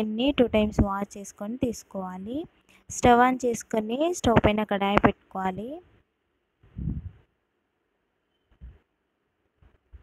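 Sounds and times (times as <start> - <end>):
faint low thumps: 6.7 - 7.3.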